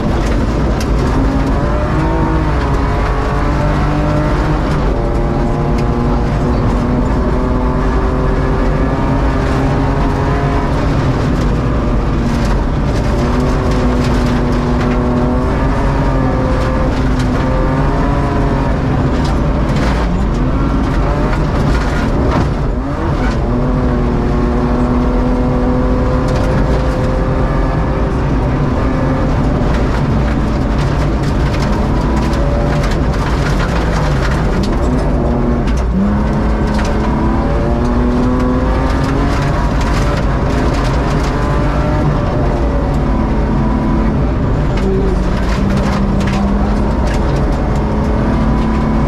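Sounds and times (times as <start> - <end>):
rally car engine revving: 0.0 - 49.0
stones ticking against car: 29.3 - 43.1.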